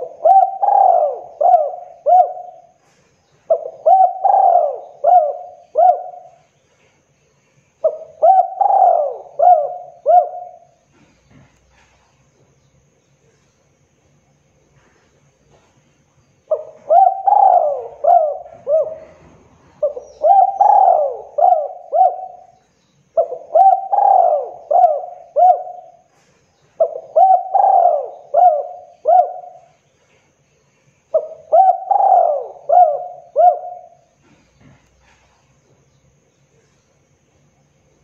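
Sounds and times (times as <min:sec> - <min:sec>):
dove cooing: 0:00.0 - 0:06.5, 0:07.8 - 0:12.0, 0:16.5 - 0:22.6, 0:23.2 - 0:29.8, 0:31.1 - 0:35.4.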